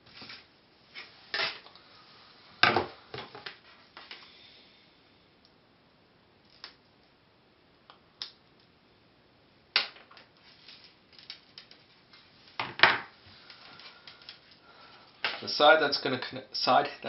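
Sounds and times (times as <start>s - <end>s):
wire handling rustle: 10.1s - 15.6s.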